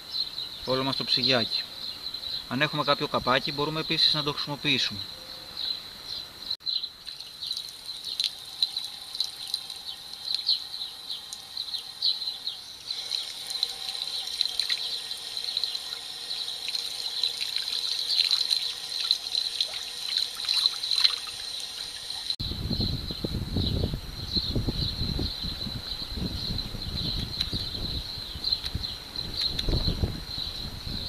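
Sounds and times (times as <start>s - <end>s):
tap water splashing onto cloth: 7.1s - 10.4s.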